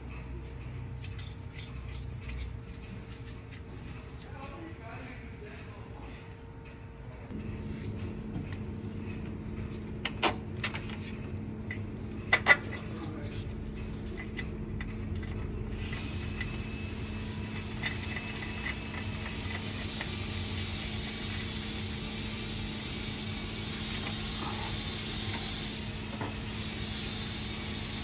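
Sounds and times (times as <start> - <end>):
steady low hum: 0.0 - 28.0
metal clinks and knocks: 13.6 - 21.8.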